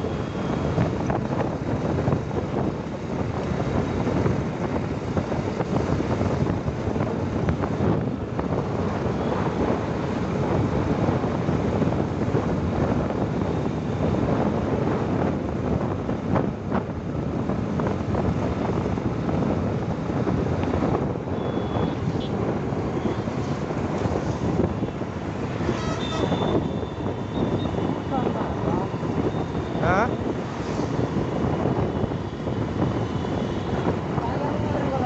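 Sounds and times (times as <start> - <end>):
vehicle road and engine noise: 0.0 - 35.0
wind buffeting microphone: 0.0 - 35.0.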